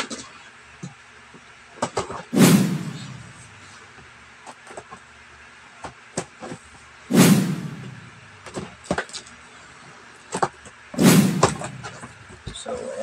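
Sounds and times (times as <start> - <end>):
loud rustling thump: 2.4 - 3.5, 7.1 - 8.2, 11.0 - 12.1.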